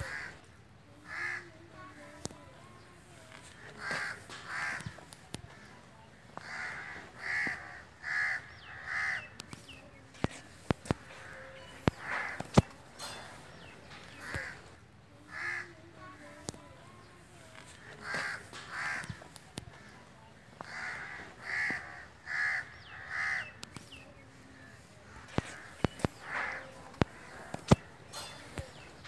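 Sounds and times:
crows cawing: 0:00.0 - 0:00.4, 0:01.0 - 0:01.5, 0:03.6 - 0:05.7, 0:06.4 - 0:09.3, 0:11.0 - 0:12.5, 0:14.1 - 0:14.7, 0:15.3 - 0:15.8, 0:17.9 - 0:19.9, 0:20.6 - 0:23.6, 0:25.2 - 0:27.6.

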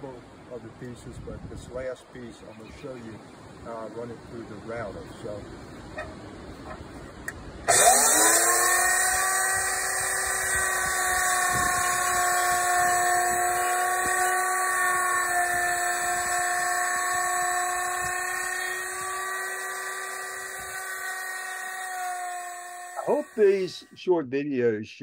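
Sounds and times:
electric router high whine: 0:07.7 - 0:23.9.

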